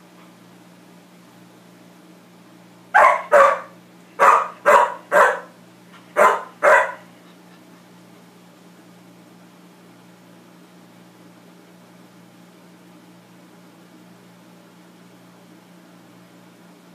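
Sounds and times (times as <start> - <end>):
dog barking: 3.0 - 5.5, 6.1 - 7.1.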